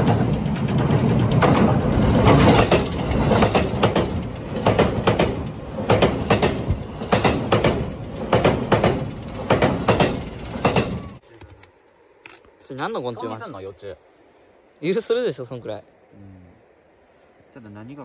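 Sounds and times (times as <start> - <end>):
electric train rumbling: 0.0 - 11.2
wheels clacking over rail joints: 0.0 - 11.2.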